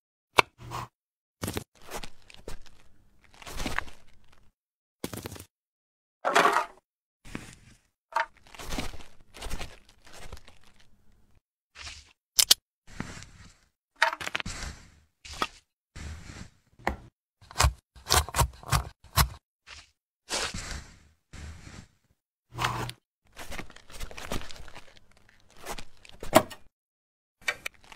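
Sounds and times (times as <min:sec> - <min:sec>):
knife chopping on cutting board: 0:16.9 - 0:19.4.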